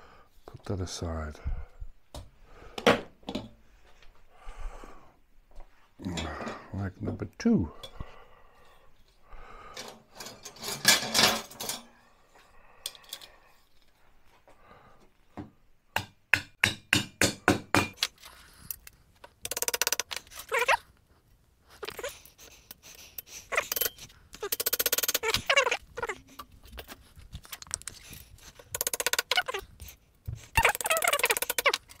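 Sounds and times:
fast clicking rattle: 0:23.6 - 0:25.4, 0:28.7 - 0:29.4.

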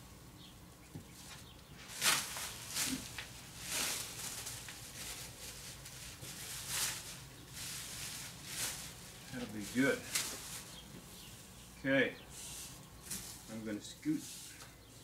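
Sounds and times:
plastic film rustling: 0:01.2 - 0:11.5.

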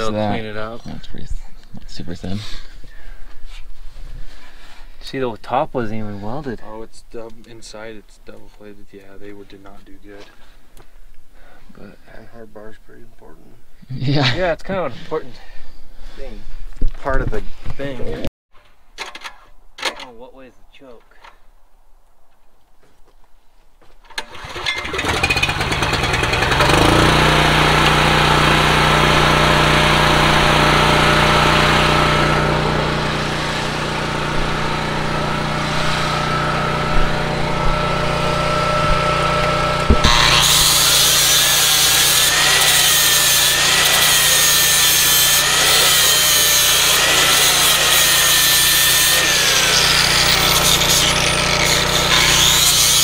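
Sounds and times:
angle grinder grinding steel: 0:24.2 - 0:53.0
small petrol engine running: 0:24.2 - 0:53.0.

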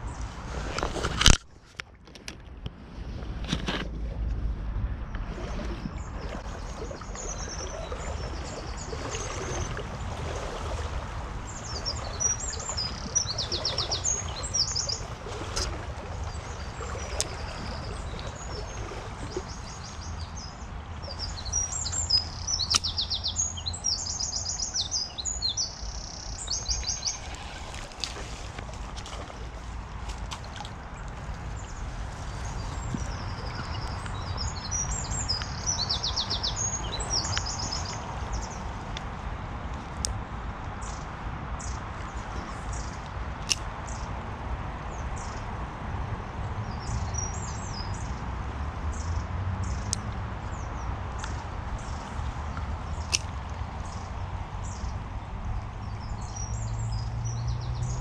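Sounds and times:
songbird trilling: 0:06.7 - 0:09.8, 0:11.5 - 0:15.7, 0:16.3 - 0:27.4, 0:32.9 - 0:38.6.

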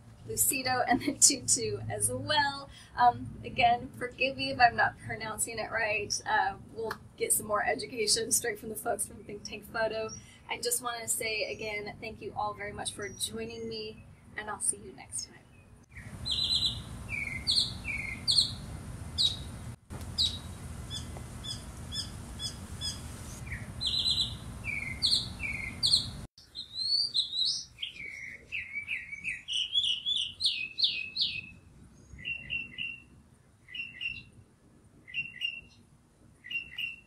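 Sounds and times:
low background rumble: 0:00.0 - 0:08.2, 0:15.8 - 0:26.3
small birds chirping: 0:15.5 - 0:34.4, 0:35.0 - 0:35.8, 0:36.4 - 0:37.0.

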